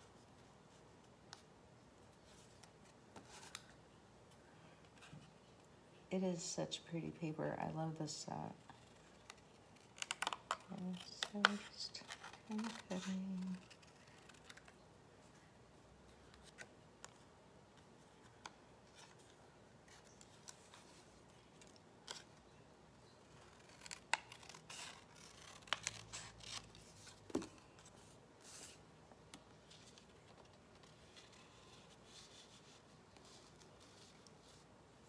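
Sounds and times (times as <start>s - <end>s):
scissors snipping paper: 9.2s - 14.7s, 23.3s - 26.7s.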